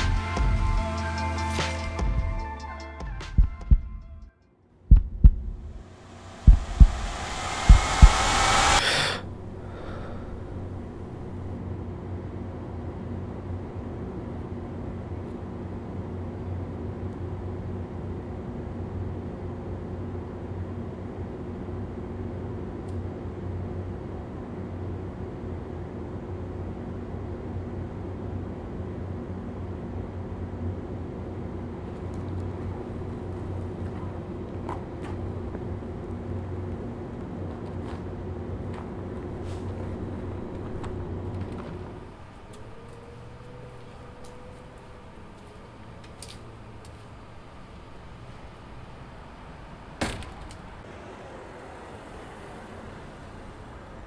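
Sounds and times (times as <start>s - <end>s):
low steady hum: 4.9s - 18.1s
low mechanical hum: 4.9s - 54.0s
loud rising noise: 5.2s - 11.6s.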